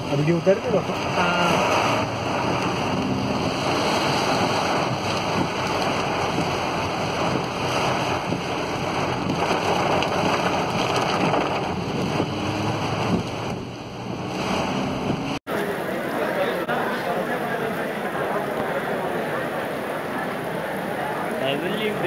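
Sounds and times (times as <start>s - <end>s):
floodwater rushing and splashing: 0.0s - 22.0s
wind buffeting microphone: 0.9s - 15.4s.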